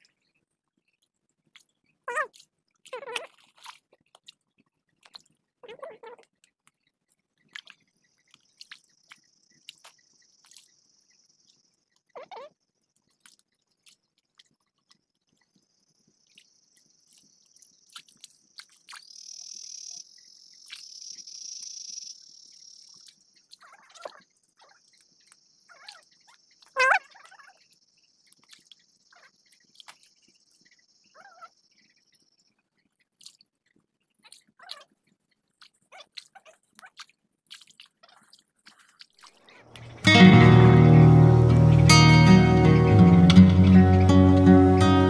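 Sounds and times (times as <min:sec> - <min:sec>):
night insects trilling: 0:15.6 - 0:32.6.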